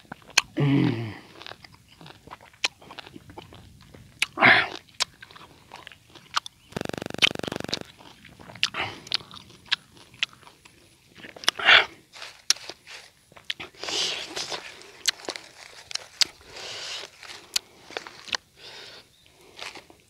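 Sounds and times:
wet chewing and crunching: 0.0s - 20.0s
person humming mm: 0.6s - 1.2s.

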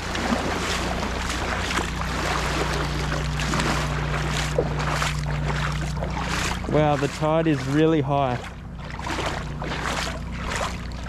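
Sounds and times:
shallow water splashing over rocks: 0.0s - 11.0s.

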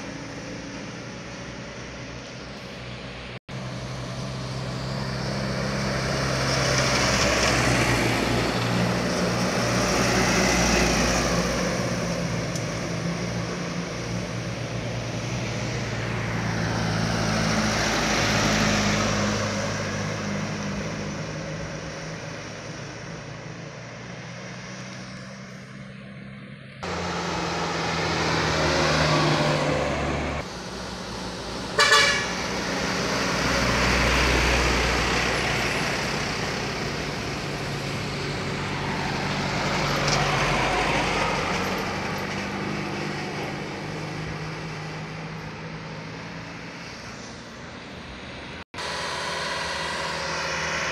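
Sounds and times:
diesel truck engines passing: 0.0s - 50.9s
loud horn blast: 31.8s - 32.5s.

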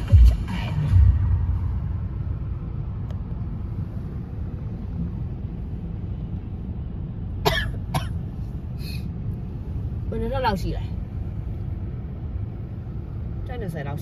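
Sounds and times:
car rumbling in traffic: 0.0s - 14.0s
person coughing: 7.4s - 8.2s.

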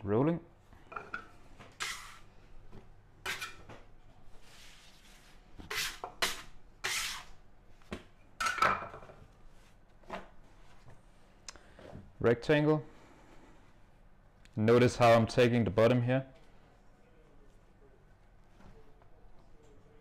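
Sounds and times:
metal bench scraper scraping: 1.8s - 2.3s, 3.2s - 3.7s, 5.6s - 7.3s.

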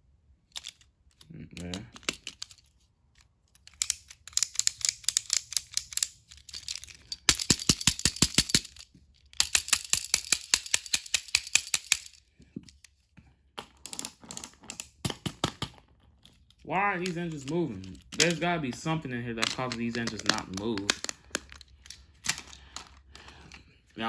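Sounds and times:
toy engine plastic clicking: 0.5s - 12.9s, 16.9s - 23.0s.

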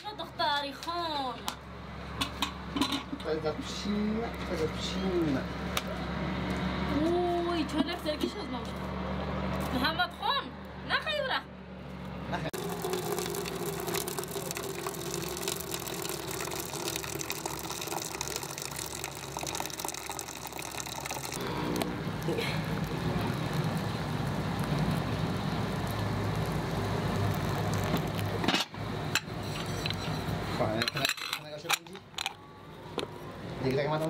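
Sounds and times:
water pouring into metal teapot: 12.6s - 21.4s, 22.0s - 28.4s.

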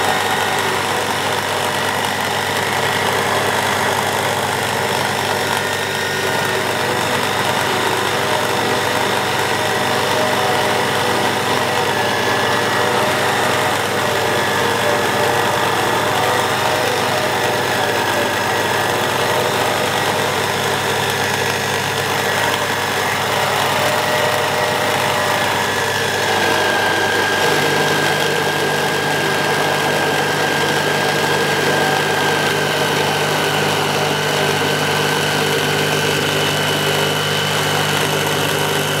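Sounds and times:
milling machine cutting wood: 0.0s - 39.0s.

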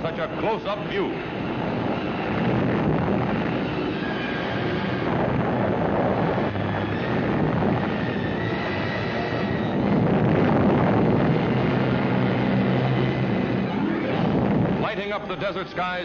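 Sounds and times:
blast roar and rumble: 0.0s - 16.0s.

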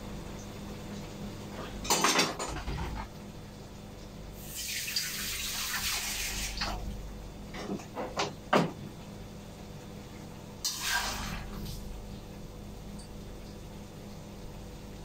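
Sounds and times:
kitchen tap running: 4.4s - 7.0s.

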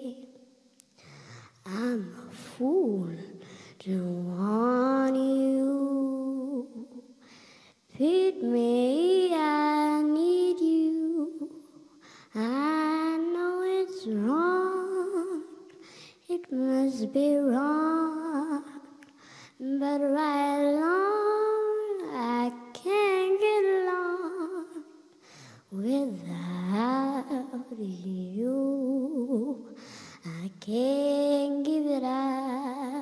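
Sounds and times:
girl singing with vibrato: 0.0s - 33.0s
short breaths: 7.2s - 7.9s, 15.8s - 16.2s, 19.1s - 19.6s, 29.7s - 30.2s.

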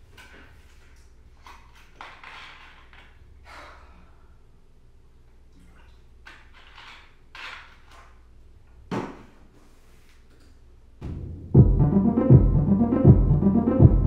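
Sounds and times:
person breathing: 3.4s - 4.6s.

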